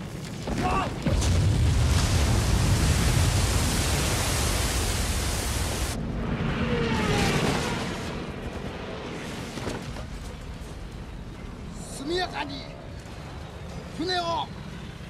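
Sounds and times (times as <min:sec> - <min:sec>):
water rushing roar: 0:00.7 - 0:10.0.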